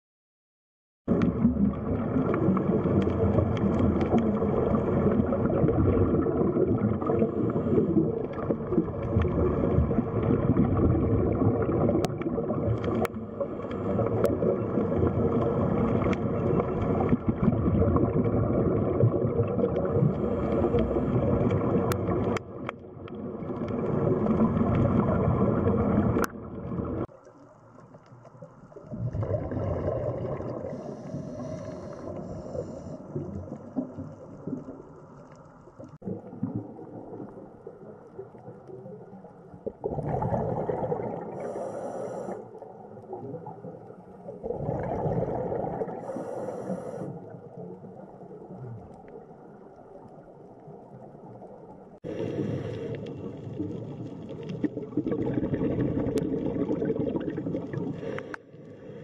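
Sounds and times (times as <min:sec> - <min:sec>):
underwater rumble and gurgle: 0:01.1 - 0:59.0.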